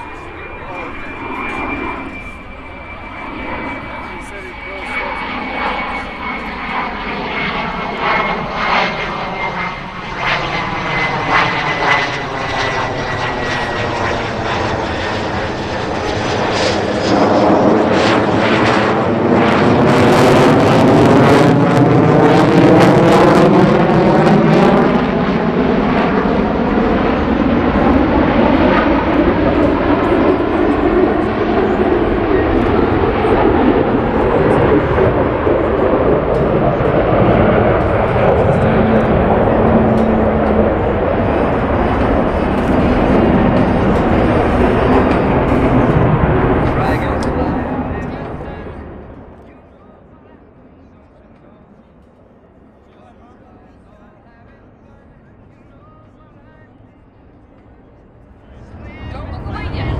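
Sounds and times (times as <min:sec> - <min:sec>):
jet engine roar: 0:00.0 - 0:59.9.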